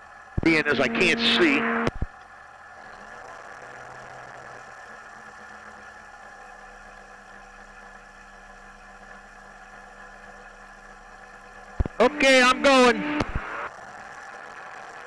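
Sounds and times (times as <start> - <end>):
ultralight aircraft engine running: 2.9 - 13.8.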